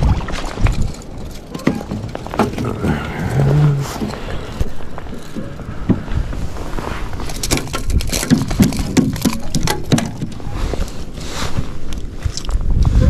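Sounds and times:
fish slapping on wooden planks: 7.2s - 10.4s.

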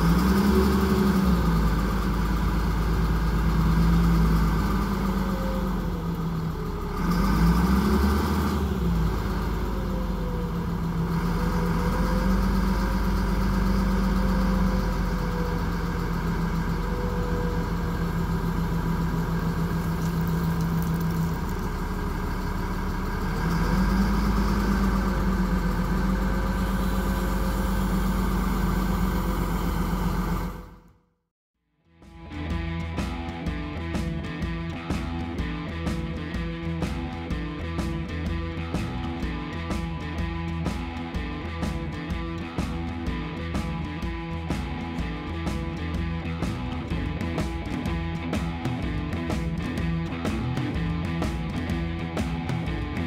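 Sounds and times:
diesel engine idling: 0.0s - 31.0s.

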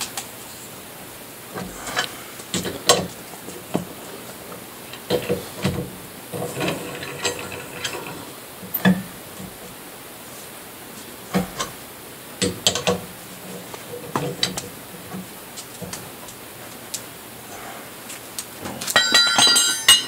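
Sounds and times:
lug wrench clinking on wheel nuts: 18.8s - 20.0s.

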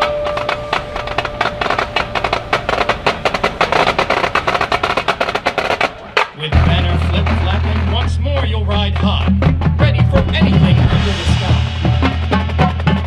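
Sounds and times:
marching band drum strokes: 0.0s - 13.0s
band playing low sustained note: 6.5s - 13.0s.

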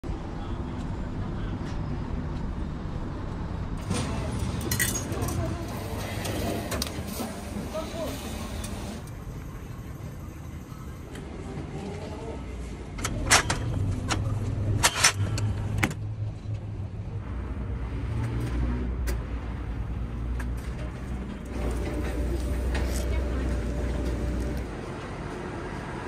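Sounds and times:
vending machine motor hum: 3.8s - 9.3s, 21.2s - 25.1s.

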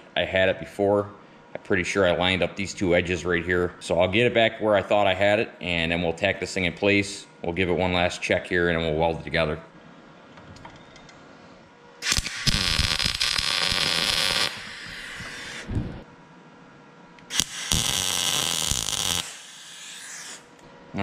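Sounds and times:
welding arc crackle: 12.0s - 16.0s, 17.2s - 20.5s.

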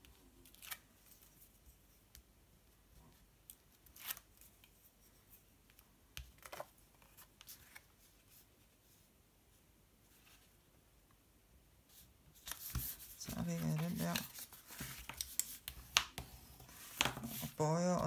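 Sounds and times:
paper rustling: 11.9s - 18.0s.

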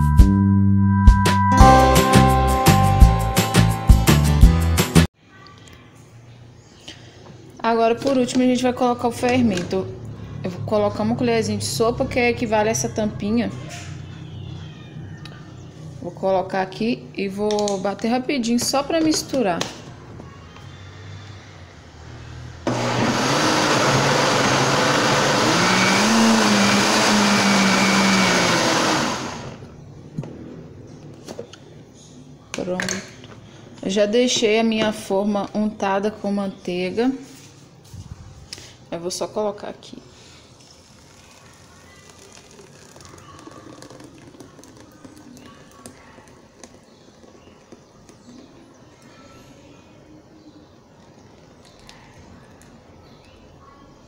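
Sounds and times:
blender motor running: 22.7s - 29.6s
batter pouring into a pan: 40.7s - 46.0s.

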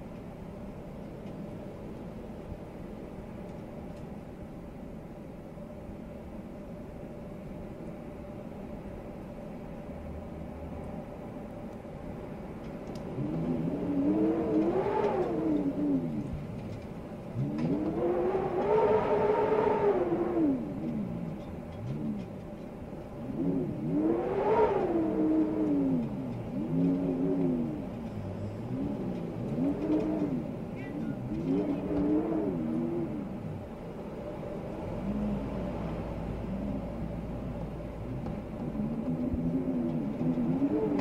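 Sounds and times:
wind howling in gusts: 6.8s - 41.0s.

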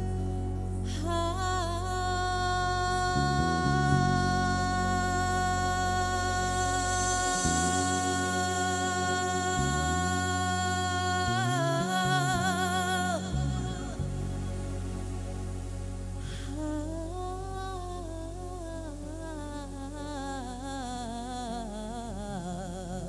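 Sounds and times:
band bass line: 0.0s - 16.3s
woman singing: 0.8s - 14.5s, 16.3s - 23.0s.

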